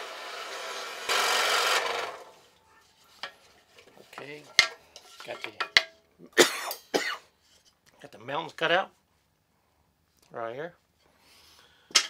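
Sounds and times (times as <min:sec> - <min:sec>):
scroll saw cutting wood: 0:00.0 - 0:02.6.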